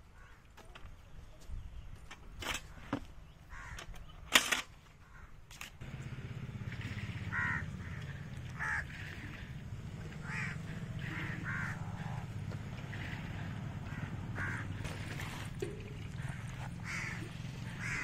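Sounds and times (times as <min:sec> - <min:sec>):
caw-like animal calls: 0:03.5 - 0:03.9, 0:05.0 - 0:05.4, 0:07.0 - 0:18.0
steady low hum: 0:05.8 - 0:18.0.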